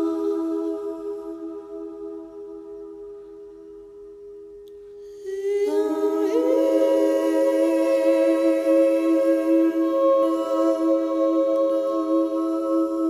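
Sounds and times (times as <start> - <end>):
wordless singing in harmony: 0.0 - 2.6, 5.2 - 13.0
quiet sustained tone: 0.0 - 13.0.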